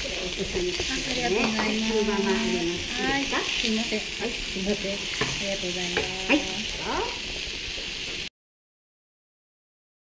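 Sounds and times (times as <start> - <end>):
meat sizzling on a skillet: 0.0 - 8.3
chopsticks and dishes clinking: 0.6 - 3.3.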